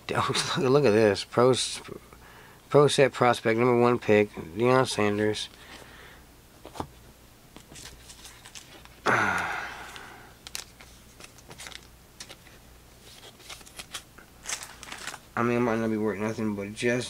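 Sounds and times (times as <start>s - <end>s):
cardboard cards being shuffled: 7.6s - 9.0s, 9.8s - 15.2s
person sighing: 9.0s - 10.4s.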